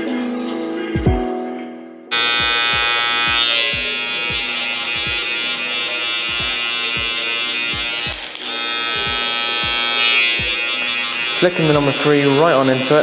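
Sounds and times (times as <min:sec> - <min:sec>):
background music with steady beat: 0:00.0 - 0:13.0
hair clippers buzzing: 0:02.1 - 0:13.0.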